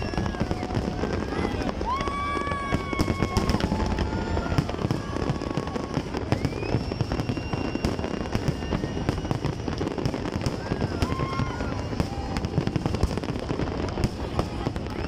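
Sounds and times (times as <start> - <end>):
fireworks bangs and crackles: 0.0 - 15.0
fireworks whistling: 0.0 - 15.0.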